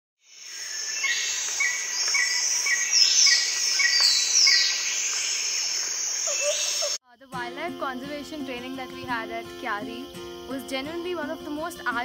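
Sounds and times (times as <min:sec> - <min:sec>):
high insect drone: 0:00.2 - 0:12.0
falling whistled bird calls: 0:00.5 - 0:07.0.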